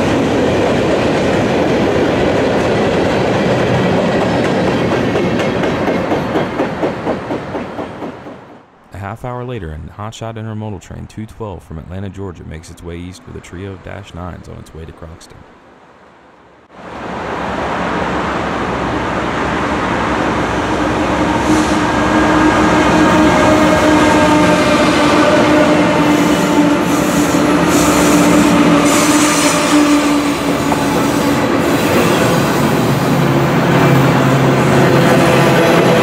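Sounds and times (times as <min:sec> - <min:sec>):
train wheels rumbling on rails: 0:00.0 - 0:08.7, 0:16.9 - 0:36.0
diesel locomotive engines droning: 0:00.0 - 0:09.0, 0:09.6 - 0:36.0.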